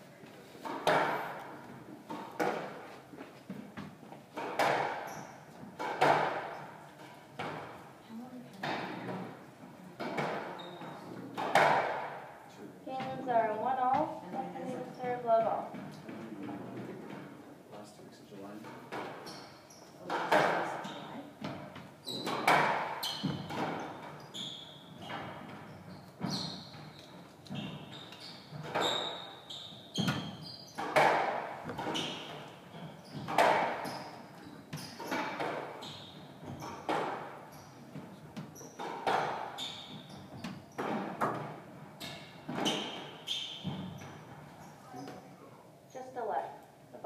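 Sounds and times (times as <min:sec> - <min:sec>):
squash ball cracking off racquets: 0:00.6 - 0:02.9, 0:03.8 - 0:06.7, 0:11.4 - 0:12.3, 0:21.4 - 0:24.2, 0:29.9 - 0:44.6
shoe squeaks on hardwood floor: 0:05.0 - 0:05.6, 0:10.5 - 0:11.2, 0:19.1 - 0:21.3, 0:22.0 - 0:41.0, 0:42.0 - 0:45.4.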